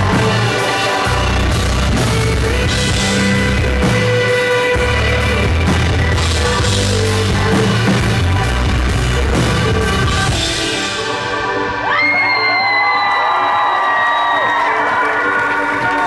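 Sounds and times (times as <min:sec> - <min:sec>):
live rock band playing: 0:00.0 - 0:12.9
audience cheering: 0:11.8 - 0:16.0.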